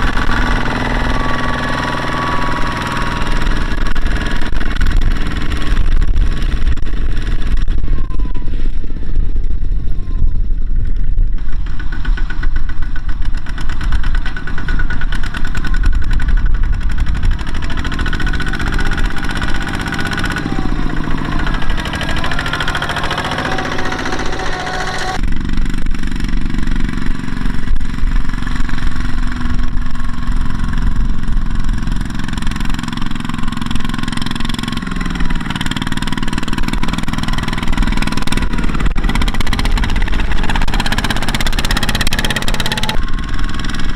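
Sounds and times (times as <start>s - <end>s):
walking tractor diesel engines running: 0.0s - 43.9s.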